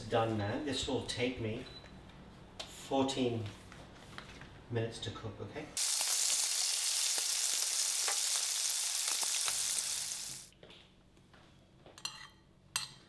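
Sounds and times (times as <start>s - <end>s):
vegetables sizzling in a pan: 5.8s - 10.5s.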